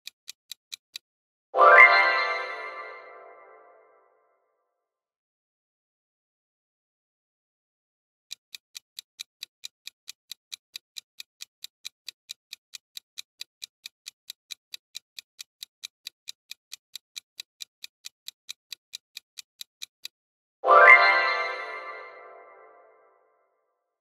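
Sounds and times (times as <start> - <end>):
clock-like timer ticking: 0.0 - 1.1, 8.3 - 20.3.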